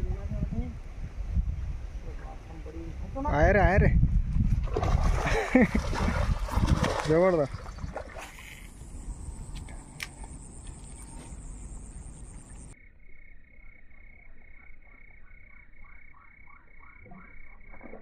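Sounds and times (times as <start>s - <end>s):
steady outdoor noise: 5.2s - 18.0s
frogs croaking: 7.7s - 18.0s.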